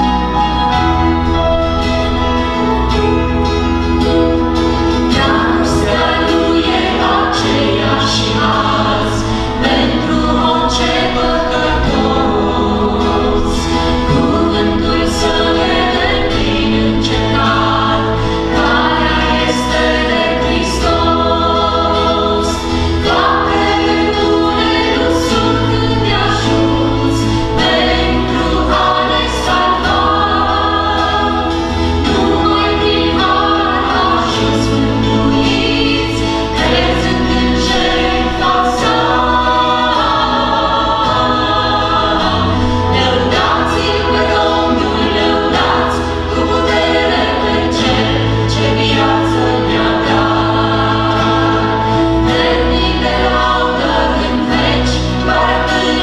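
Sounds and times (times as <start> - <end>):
acoustic guitar: 0.0 - 56.0
electric bass: 0.0 - 56.0
group singing gospel song: 0.0 - 56.0
keyboard: 0.0 - 56.0.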